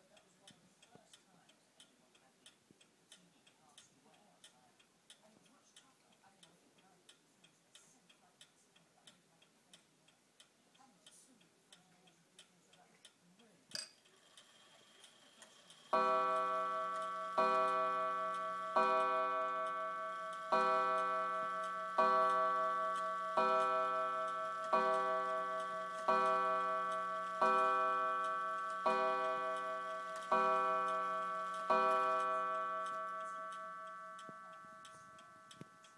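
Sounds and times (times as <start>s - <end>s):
clock ticking: 0.0s - 35.9s
clock click: 12.4s - 35.9s
clock striking: 15.8s - 35.9s.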